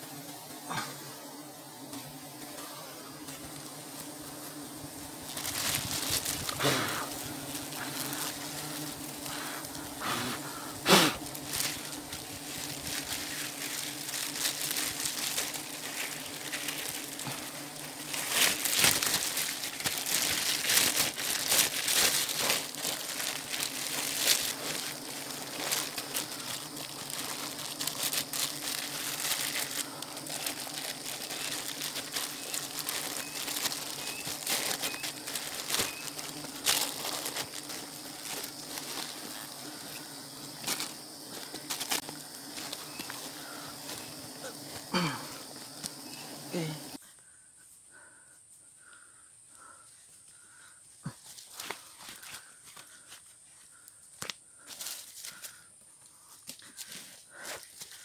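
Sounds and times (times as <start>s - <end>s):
honeybees buzzing: 0.0s - 47.0s
leaves and twigs rustling: 1.8s - 47.9s, 49.6s - 58.0s.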